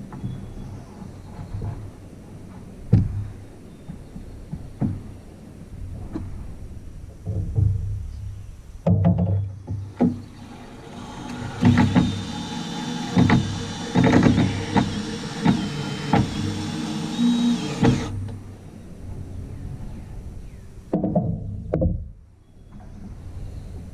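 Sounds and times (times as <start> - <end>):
steady high whine: 9.8 - 20.8
cordless drill driving screws: 10.2 - 18.2
screws knocking into wood: 11.0 - 18.1.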